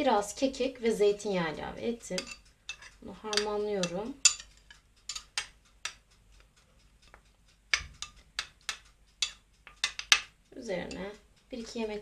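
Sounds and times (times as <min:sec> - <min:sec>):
metal spoon clinking glass bowl: 0:02.2 - 0:05.5, 0:07.8 - 0:10.3.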